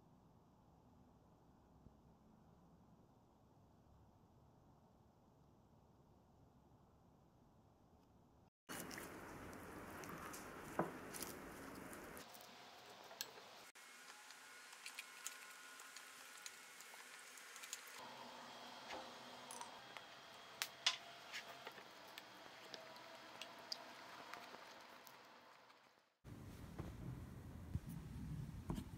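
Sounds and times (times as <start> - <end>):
soft squishing of salad leaves: 8.7 - 18.0.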